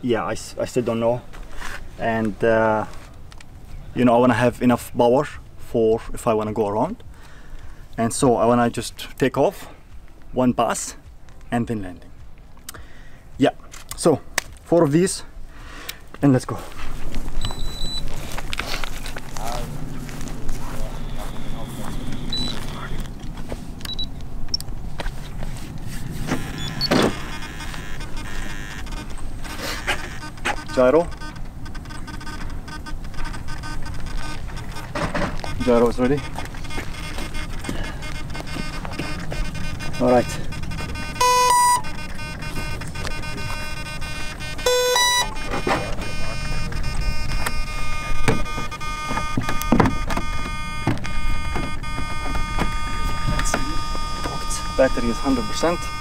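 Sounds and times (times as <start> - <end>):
short electronic beeps: 17.4 - 18.1, 20.8 - 23.0, 23.9 - 24.6, 26.4 - 56.0
electronics whir: 19.0 - 23.2, 26.3 - 56.0.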